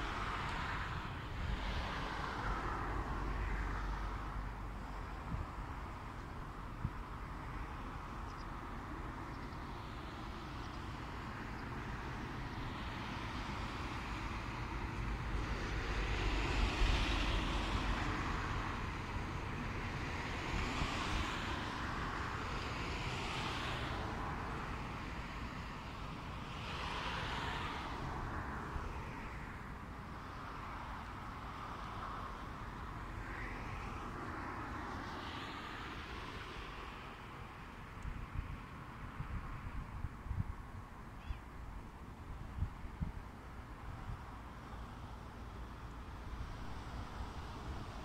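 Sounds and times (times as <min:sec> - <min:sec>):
wind blowing over microphone: 0:00.0 - 0:07.6, 0:38.0 - 0:44.4.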